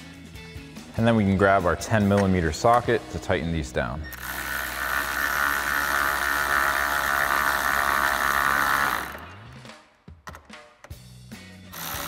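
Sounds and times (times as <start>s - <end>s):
power tool whirring: 4.1s - 9.5s, 11.7s - 12.0s.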